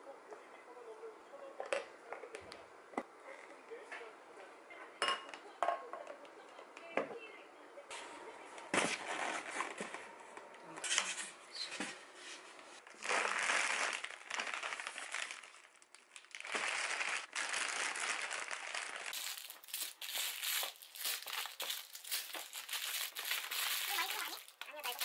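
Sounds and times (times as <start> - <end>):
plastic bags crinkling: 12.8 - 25.0.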